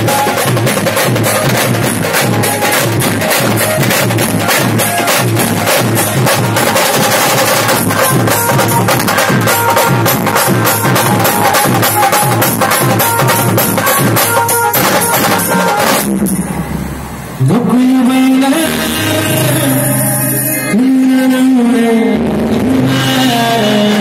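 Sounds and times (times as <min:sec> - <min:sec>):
fast drum beat: 0:00.0 - 0:16.3
live band playing dance music: 0:00.0 - 0:16.6.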